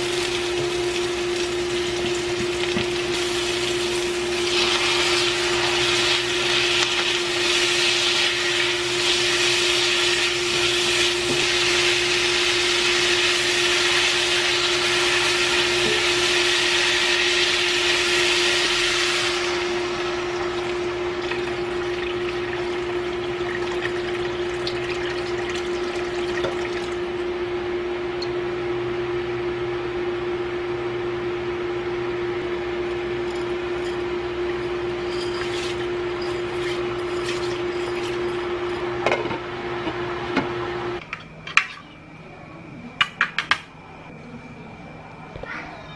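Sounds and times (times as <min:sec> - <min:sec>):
steady hum: 0:00.0 - 0:45.9
water sloshing in a wok: 0:19.2 - 0:27.2, 0:33.2 - 0:38.9.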